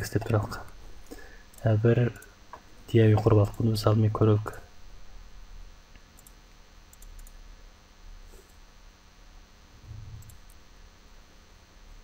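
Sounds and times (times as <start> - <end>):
low steady hum: 0.0 - 12.0
computer mouse clicks: 6.0 - 7.4, 10.1 - 10.6.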